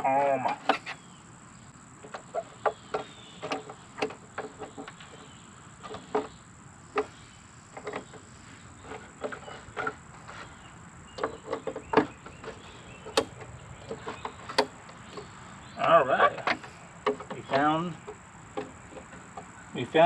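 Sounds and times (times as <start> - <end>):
fastener clicking and knocking: 2.0 - 5.2, 7.8 - 8.2, 11.2 - 19.5.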